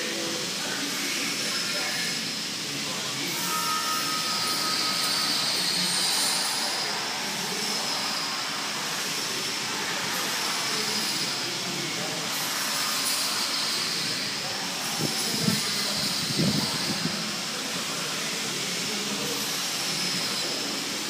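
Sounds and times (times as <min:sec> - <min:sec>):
lifting mechanism whirr and whine: 0:00.0 - 0:21.0
brief steady tone: 0:03.4 - 0:05.4.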